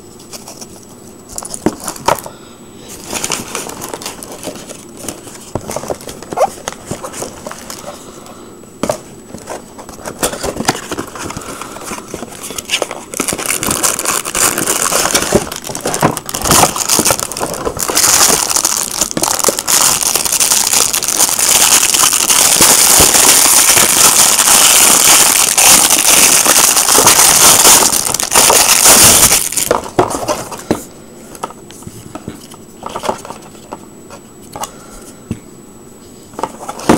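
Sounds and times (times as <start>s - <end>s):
handling noise: 2.9s - 8.0s
plastic packaging crinkling: 2.9s - 8.0s, 8.8s - 30.6s.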